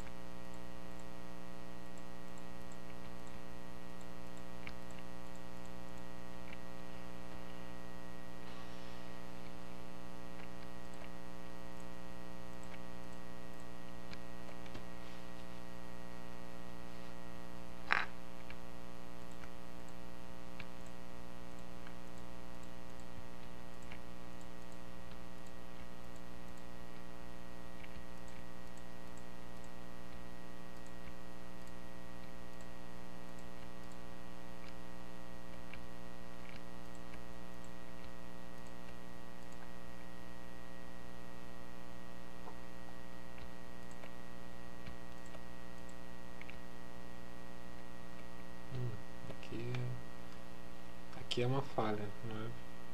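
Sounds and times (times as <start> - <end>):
faint clicks: 0.0 - 7.7, 9.4 - 15.0, 17.9 - 40.2, 42.3 - 46.8
electrical mains hum: 0.0 - 52.9.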